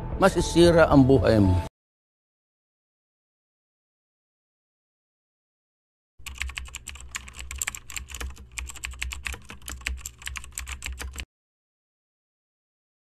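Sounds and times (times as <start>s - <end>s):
keyboard typing clicks: 6.2s - 11.3s.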